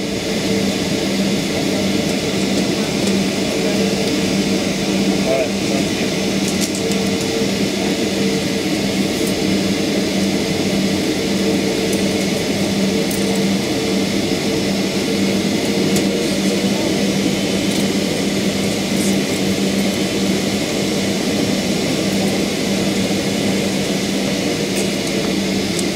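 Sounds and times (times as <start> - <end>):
machinery rushing noise: 0.0 - 25.9.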